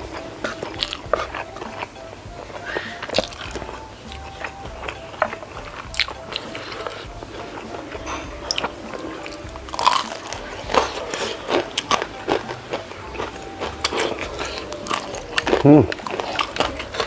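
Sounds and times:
crunching bites of fried snack: 8.5 - 17.0.

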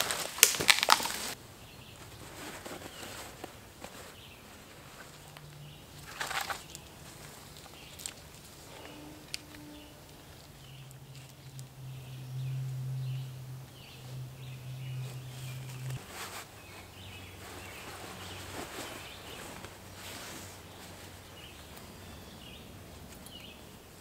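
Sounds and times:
footsteps on leaf litter: 0.0 - 12.0, 14.1 - 22.6
low steady hum: 0.0 - 24.0
birds chirping: 0.8 - 24.0.

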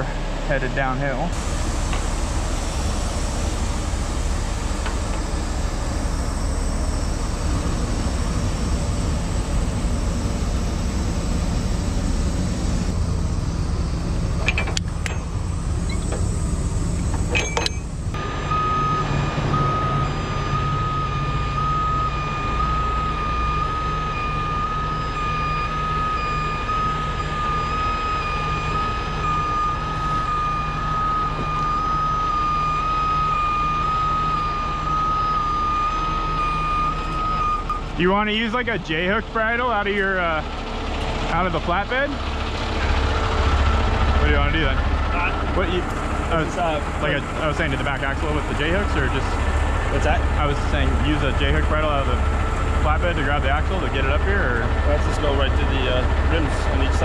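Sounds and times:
diesel truck engine running: 0.0 - 57.0
truck backup alarm beeping: 0.0 - 57.0.

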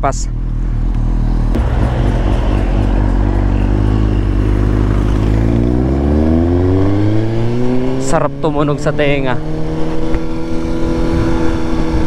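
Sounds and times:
motorcycle engine accelerating: 0.3 - 12.0.

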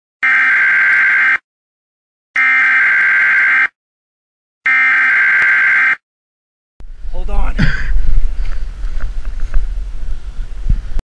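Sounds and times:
warning buzzer beeps: 0.2 - 1.4, 2.4 - 3.8, 4.7 - 6.0.

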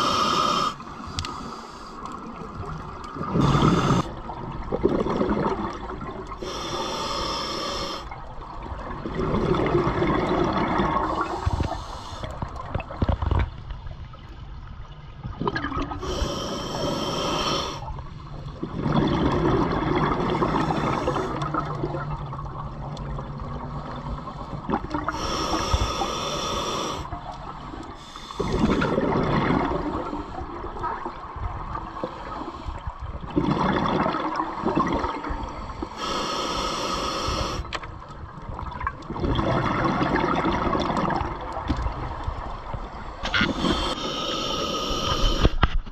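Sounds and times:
hissing inhalation through regulator: 0.0 - 2.2, 3.2 - 4.2, 6.4 - 8.2, 11.1 - 12.5, 16.0 - 17.9, 20.3 - 21.6, 23.8 - 27.2, 27.9 - 29.0, 35.3 - 37.8, 43.0 - 45.7
exhaled bubbles rushing: 2.4 - 6.4, 8.1 - 11.5, 15.2 - 16.0, 18.4 - 23.6, 28.4 - 32.0, 33.2 - 35.5, 38.2 - 42.8.

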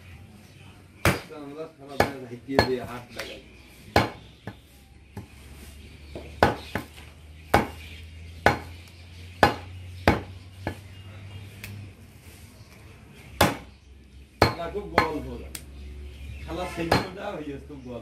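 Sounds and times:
cleaver chopping meat on wood: 1.0 - 1.3, 1.9 - 3.3, 3.9 - 5.4, 6.1 - 10.9, 13.4 - 13.7, 14.4 - 15.2, 16.9 - 17.2.

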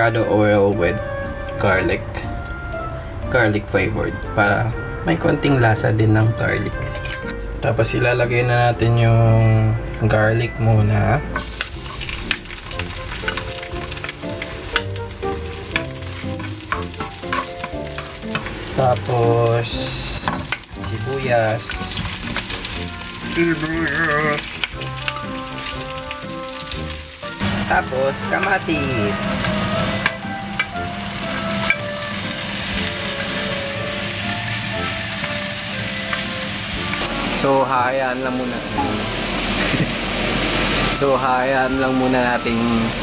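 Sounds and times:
garlic sizzling in hot oil: 10.6 - 43.0
wooden spoon stirring: 11.3 - 37.5.

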